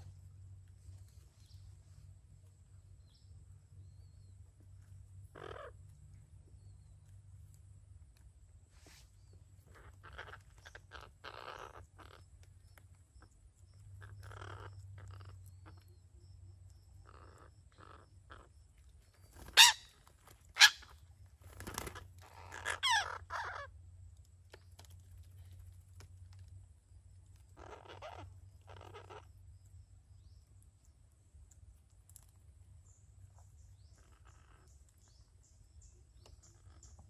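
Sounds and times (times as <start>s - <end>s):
parakeets chattering: 5.2s - 5.8s, 9.6s - 12.5s, 13.2s - 16.0s, 16.7s - 23.7s, 27.3s - 30.4s, 33.6s - 37.0s
parakeets squawking: 5.3s - 5.7s, 9.7s - 12.2s, 19.4s - 21.0s, 21.6s - 23.7s, 27.5s - 29.3s
parakeet shrill screeches: 19.4s - 20.0s, 20.6s - 20.9s, 22.3s - 23.7s.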